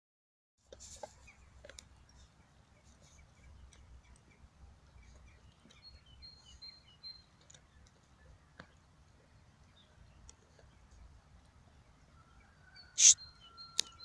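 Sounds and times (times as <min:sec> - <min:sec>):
birds chirping: 0:01.0 - 0:14.0
high whistled bird notes: 0:12.8 - 0:13.8.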